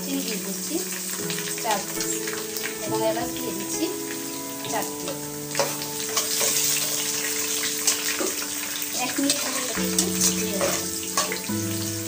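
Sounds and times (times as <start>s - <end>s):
background music with held chords: 0.0s - 12.0s
oil sizzling: 0.0s - 12.0s
spatula scraping pan: 5.0s - 11.5s.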